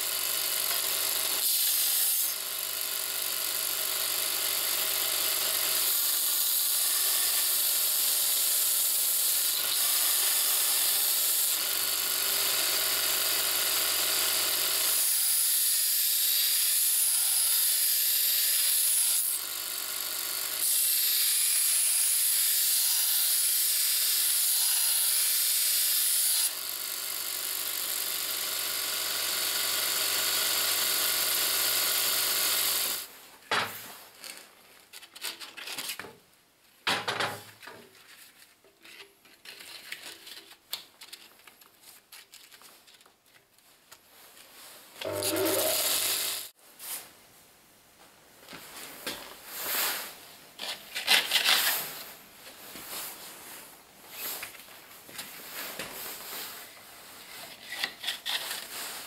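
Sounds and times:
belt grinder grinding steel: 0.0s - 33.1s, 45.0s - 46.5s.

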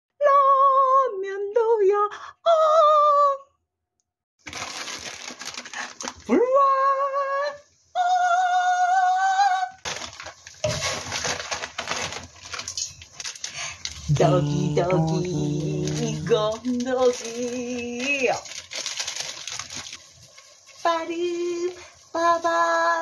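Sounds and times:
soup packet crinkling and rustling: 4.4s - 6.3s, 9.8s - 23.0s
high drawn-out vocal-like tones: 14.0s - 16.9s.

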